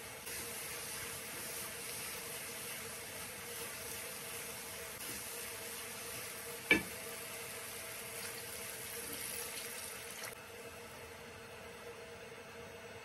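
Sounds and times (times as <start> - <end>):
lentils sizzling in a frying pan: 0.0 - 10.4.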